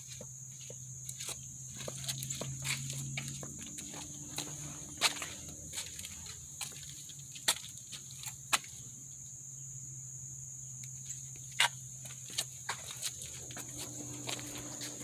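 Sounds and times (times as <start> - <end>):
insects trilling: 0.0 - 15.0
low hum: 13.4 - 15.0.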